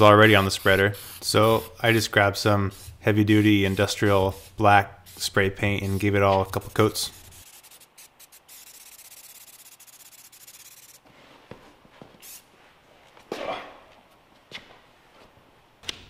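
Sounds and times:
spray paint can hissing: 0.1 - 11.0, 12.2 - 12.5.

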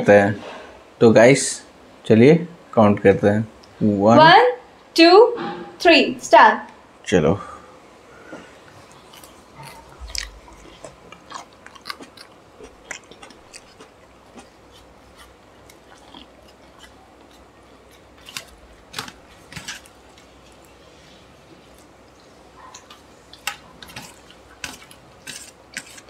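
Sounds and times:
people chewing food: 8.0 - 26.0.

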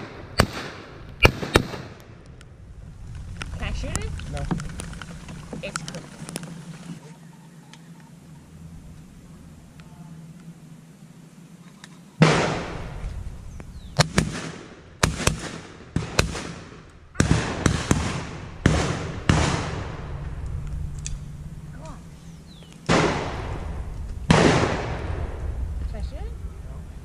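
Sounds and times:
shotgun shots with echo: 0.0 - 2.0, 12.2 - 13.0, 14.0 - 20.1, 22.9 - 25.4.

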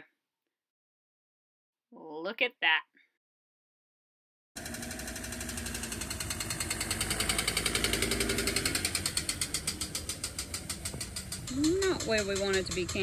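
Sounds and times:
diesel engine running: 4.6 - 13.0
rapid mechanical clicking: 4.6 - 13.0.

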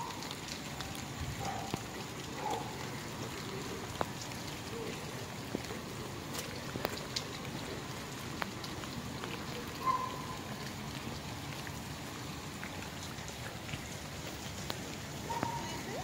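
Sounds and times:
steady rain hiss: 0.0 - 16.0.

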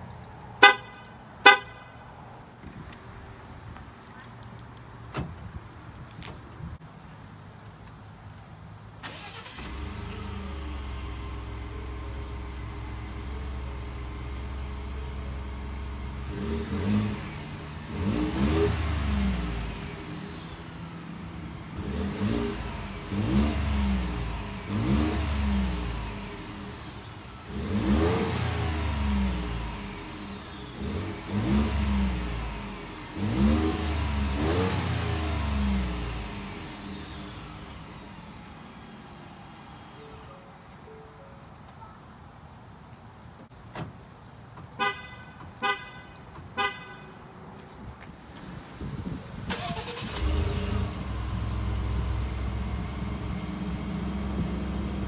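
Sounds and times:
truck engine idling and revving: 8.2 - 40.9, 44.7 - 55.0.

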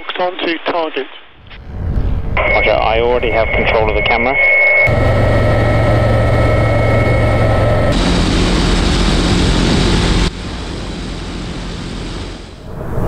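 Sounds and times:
even rushing noise: 1.4 - 4.1, 4.9 - 13.0
turbine whine: 1.4 - 13.0
helicopter cockpit hum: 2.4 - 13.0
aircraft noise: 4.9 - 13.0.

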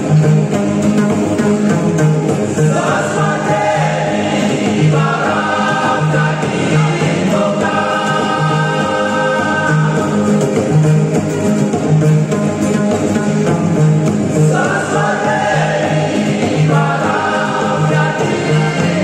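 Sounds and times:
plucked bass: 0.0 - 19.0
strummed acoustic guitars: 0.0 - 19.0
men's vocal group singing: 2.6 - 10.6, 14.4 - 19.0.

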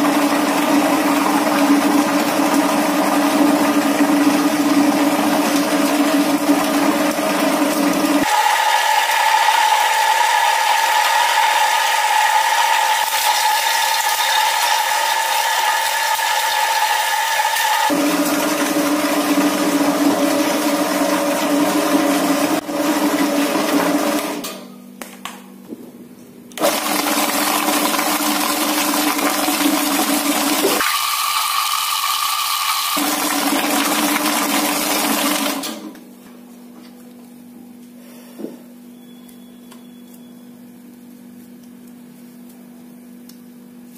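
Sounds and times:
mixer motor whining: 0.0 - 24.4, 26.6 - 36.1
paddle churning dough: 0.0 - 24.4, 26.6 - 35.9.

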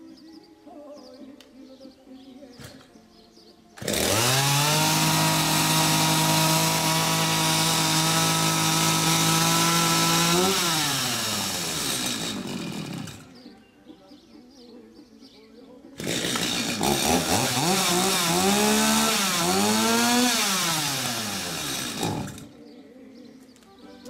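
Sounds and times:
chainsaw running: 3.8 - 13.4, 16.0 - 22.5.

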